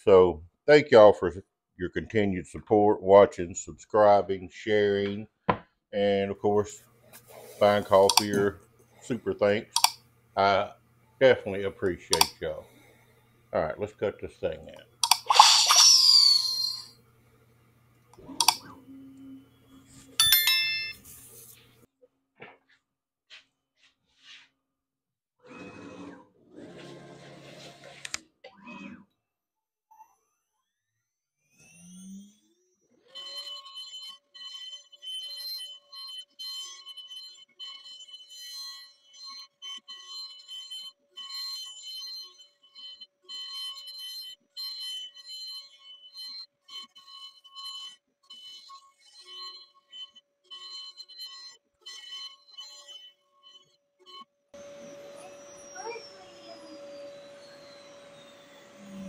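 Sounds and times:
short click: 12.1s - 12.4s
bit cutting hiss: 15.0s - 16.9s
bright bell ding: 20.2s - 21.1s
cnc router spindle whine: 31.6s - 59.0s.

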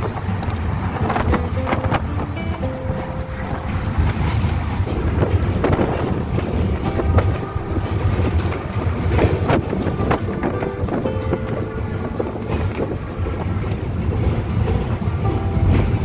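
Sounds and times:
bus engine and road rumble: 0.0s - 16.0s
wind rushing through window: 0.0s - 16.0s.

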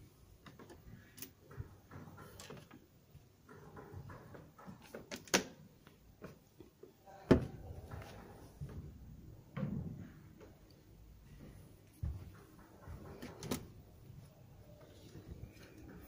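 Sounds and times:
folding chair tablet clicking and knocking: 0.4s - 5.6s, 12.4s - 13.8s.

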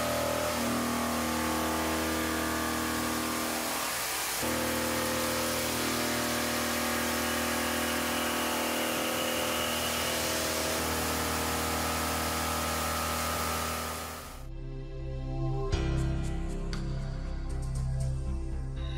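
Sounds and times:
milling machine cutting steel: 0.0s - 14.5s.

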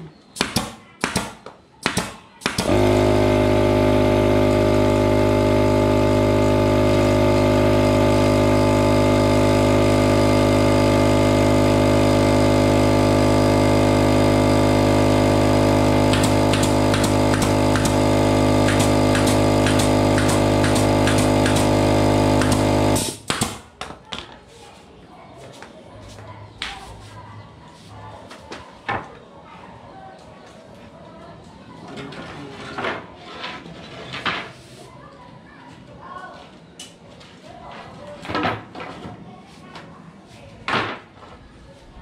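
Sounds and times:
nail gun firing: 0.4s - 3.5s, 15.9s - 23.7s
air compressor motor running: 2.4s - 23.7s.

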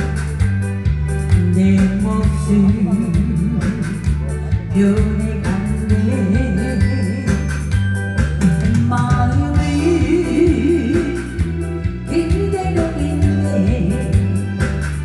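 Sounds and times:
backing track with bass line: 0.0s - 15.0s
woman singing in a husky voice: 1.3s - 4.1s, 4.7s - 7.5s, 8.7s - 14.4s.

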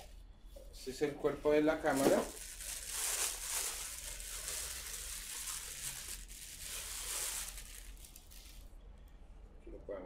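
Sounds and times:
plastic bag crinkling: 1.7s - 8.7s.

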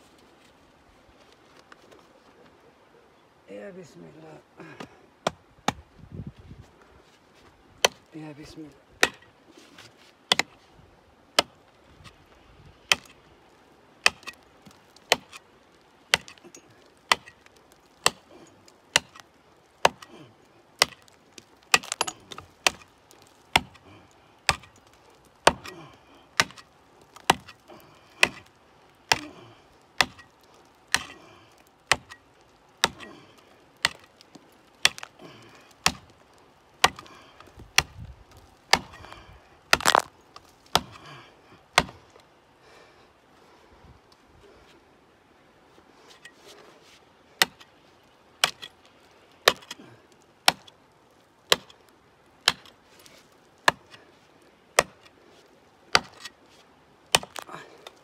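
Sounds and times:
pickaxe striking rock: 9.0s - 9.3s, 10.3s - 10.6s, 14.0s - 14.4s, 16.1s - 17.4s, 18.0s - 18.3s, 18.9s - 19.2s, 19.8s - 20.2s, 20.8s - 23.8s, 24.5s - 24.8s, 25.4s - 25.8s, 26.4s - 27.6s, 28.2s - 28.5s, 30.0s - 30.3s, 30.9s - 31.2s, 31.9s - 32.2s, 32.8s - 33.2s, 33.8s - 34.1s, 34.8s - 36.1s, 36.8s - 37.1s, 38.7s - 40.1s, 40.7s - 41.1s, 41.8s - 42.0s, 47.4s - 47.7s, 48.4s - 48.7s, 49.4s - 49.8s, 50.5s - 50.7s, 51.5s - 51.8s, 52.5s - 52.7s, 53.7s - 54.0s, 54.8s - 55.1s, 55.9s - 56.3s, 57.1s - 57.5s.

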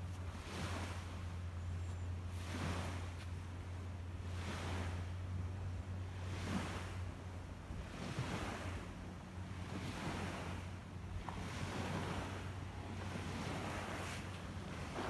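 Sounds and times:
steady low hum: 0.0s - 15.0s
soft rushing noise: 7.8s - 15.0s.

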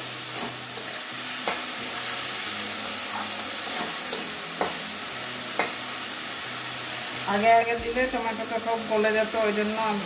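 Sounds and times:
food sizzling in a pan: 0.0s - 10.0s
metal spatula scraping a pan: 0.2s - 4.8s.

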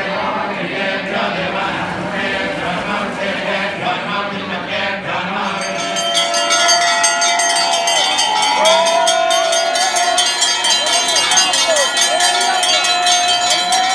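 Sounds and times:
men chanting in unison: 0.0s - 6.1s
hand bell ringing rapidly: 5.6s - 13.9s.

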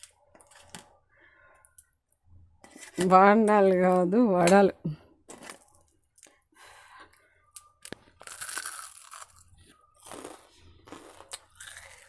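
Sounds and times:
crunching bite of fried food: 7.8s - 12.0s
person chewing noisily: 8.1s - 12.0s.

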